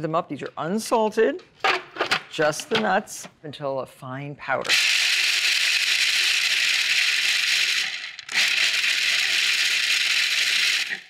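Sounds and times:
food processor grinding nuts: 0:04.7 - 0:11.0.

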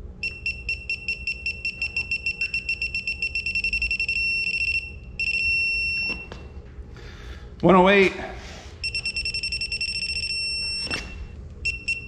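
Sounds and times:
steady beep tone: 0:00.2 - 0:06.3, 0:08.8 - 0:12.0
short high beeps: 0:08.8 - 0:12.0.

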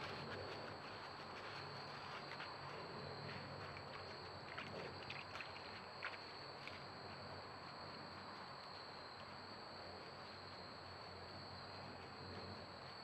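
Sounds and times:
faint clicks and rustles: 0:00.0 - 0:10.2
cricket chorus: 0:00.0 - 0:13.0.

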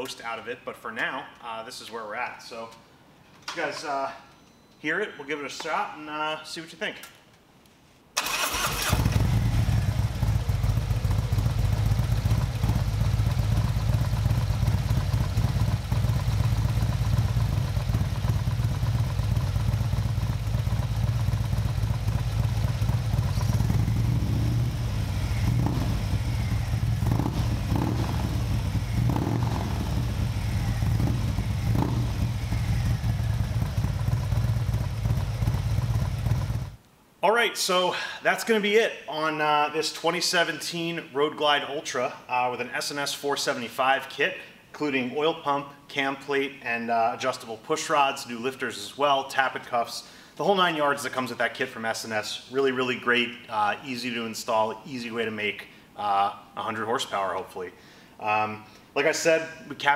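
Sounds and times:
motorcycle engine starting and idling: 0:08.2 - 0:36.8.

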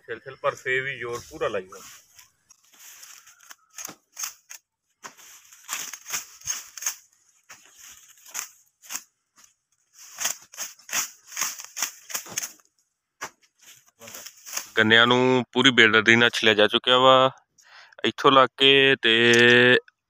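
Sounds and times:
dry leaves crackling and rustling: 0:01.8 - 0:12.7, 0:13.6 - 0:14.8.

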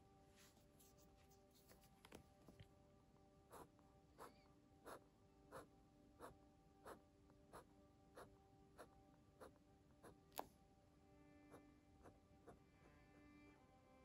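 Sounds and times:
marker pen scratching on paper: 0:03.5 - 0:06.3.

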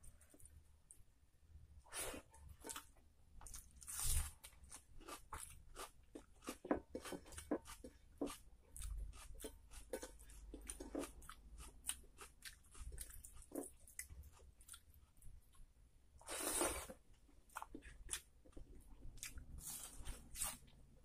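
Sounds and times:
chewing: 0:02.5 - 0:15.6.

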